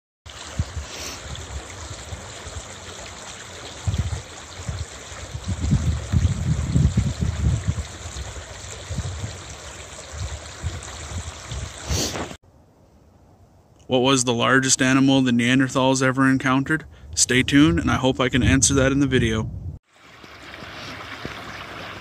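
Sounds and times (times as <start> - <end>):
stream running over rocks: 0.3 - 12.4, 19.8 - 22.0
wind buffeting microphone: 0.4 - 2.7, 3.8 - 12.3, 16.9 - 19.8.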